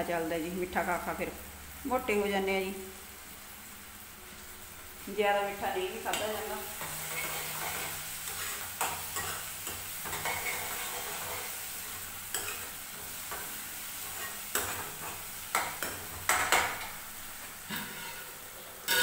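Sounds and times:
onion sizzling in oil: 0:00.0 - 0:19.0
ladle scraping metal pan: 0:17.7 - 0:18.3.

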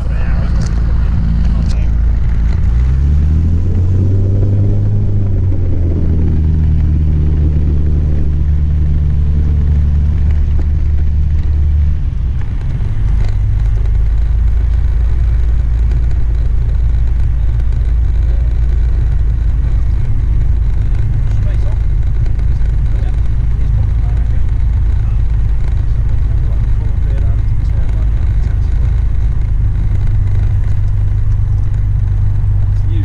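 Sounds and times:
aircraft engine and propeller: 0:00.0 - 0:33.0
low rumble: 0:00.0 - 0:33.0.

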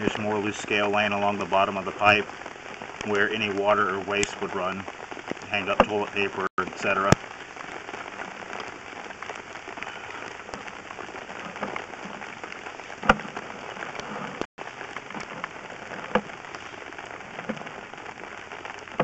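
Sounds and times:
crackling hiss: 0:00.0 - 0:19.0.

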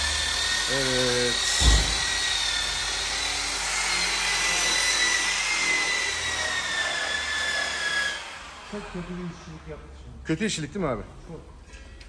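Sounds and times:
power tool whining: 0:00.0 - 0:09.4.

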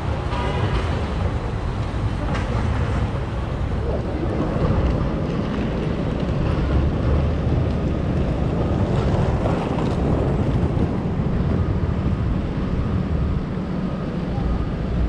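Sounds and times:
low traffic rumble: 0:00.0 - 0:15.0
wind buffeting the microphone: 0:00.0 - 0:15.0.

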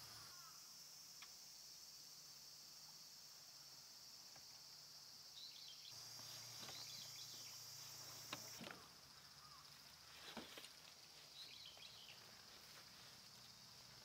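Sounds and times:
insects droning: 0:00.0 - 0:14.0
bird chirps: 0:05.4 - 0:08.6, 0:11.3 - 0:12.4.

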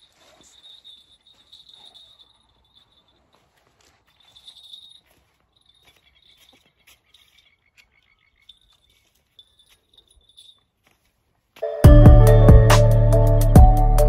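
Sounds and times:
frogs and insects calling: 0:05.8 - 0:09.8.

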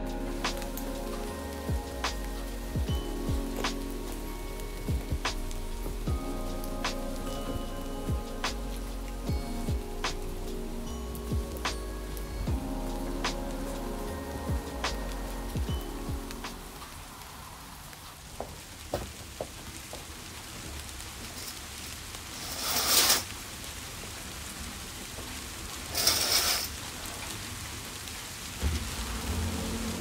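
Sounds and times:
rain hiss: 0:00.0 - 0:30.0
curtains swishing along rail: 0:22.3 - 0:23.3, 0:25.9 - 0:26.8.

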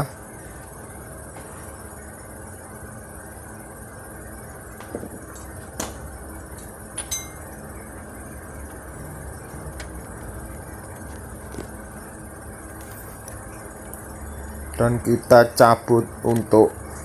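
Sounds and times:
metal tools clinking: 0:07.0 - 0:07.4.

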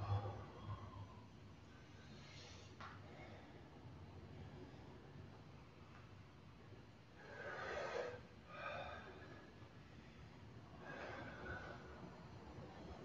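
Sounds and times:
man breathing hard: 0:07.2 - 0:12.2.

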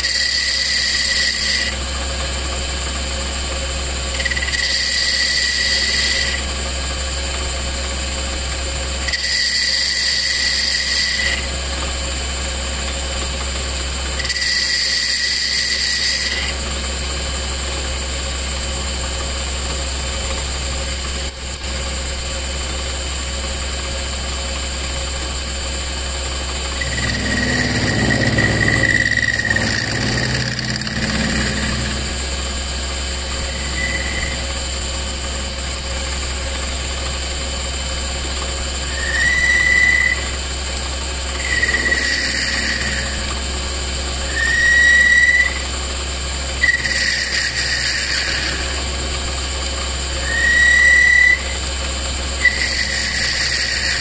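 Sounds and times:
tool bit squealing: 0:00.0 - 0:01.8, 0:04.1 - 0:06.5, 0:09.0 - 0:11.5, 0:14.2 - 0:16.6, 0:20.8 - 0:22.3, 0:26.7 - 0:35.9, 0:38.8 - 0:40.7, 0:41.4 - 0:45.8, 0:46.6 - 0:51.7, 0:52.4 - 0:54.0
metal lathe humming: 0:00.0 - 0:06.9, 0:09.0 - 0:11.6, 0:14.1 - 0:16.9, 0:24.7 - 0:54.0
low rumble: 0:26.3 - 0:35.1.

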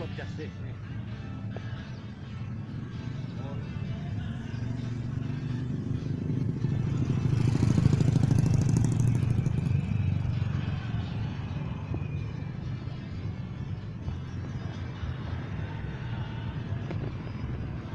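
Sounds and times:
motorcycle engine passing: 0:01.6 - 0:13.2.

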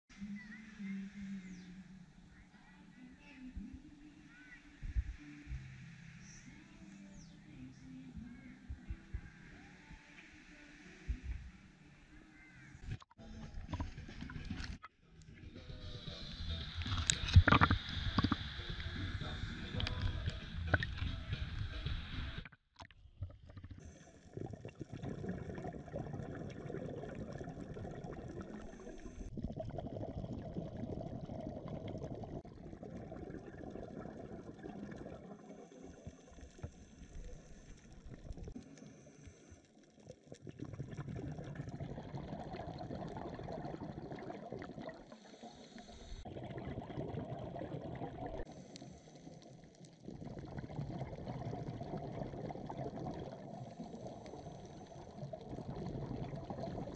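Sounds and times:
underwater rushing and bubbling: 0:15.4 - 0:56.9.

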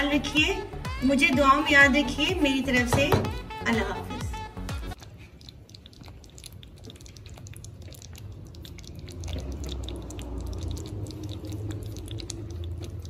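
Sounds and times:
curry crackling and bubbling in pot: 0:04.9 - 0:13.0.

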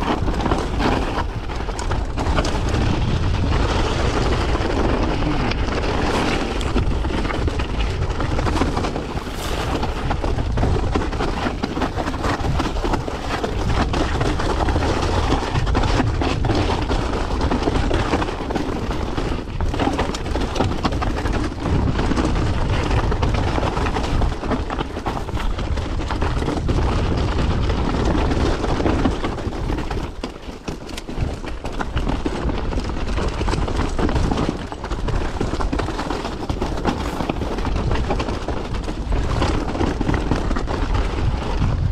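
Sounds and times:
bike clattering over rocks: 0:00.0 - 0:41.9
wind buffeting microphone: 0:00.0 - 0:41.9.

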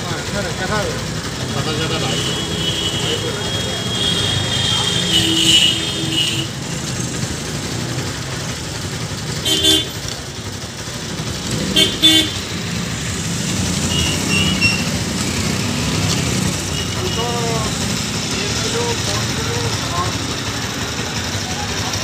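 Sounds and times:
background traffic noise: 0:00.0 - 0:22.0
vehicle horns honking: 0:01.9 - 0:06.7, 0:09.4 - 0:10.1, 0:11.5 - 0:12.6, 0:13.8 - 0:15.1, 0:16.6 - 0:17.6.

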